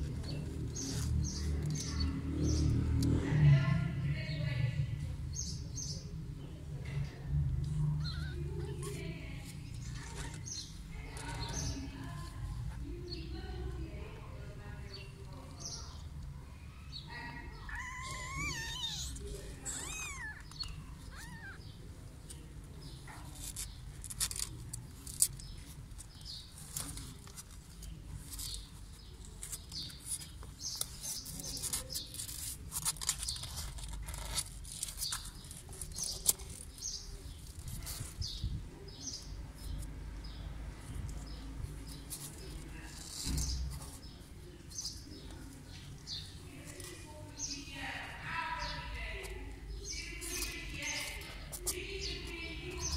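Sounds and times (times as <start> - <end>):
kittens scratching on cardboard: 0.0 - 3.3, 7.5 - 52.9
kittens mewing: 7.8 - 9.2, 17.1 - 22.0.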